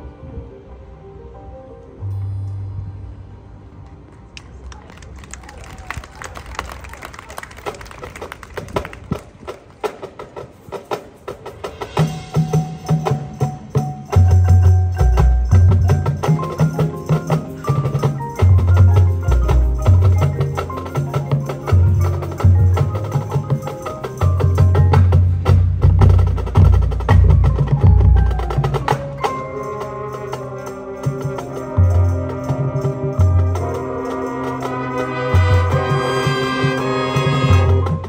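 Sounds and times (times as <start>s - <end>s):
marching band music: 7.6s - 38.0s
mallet percussion: 10.9s - 38.0s.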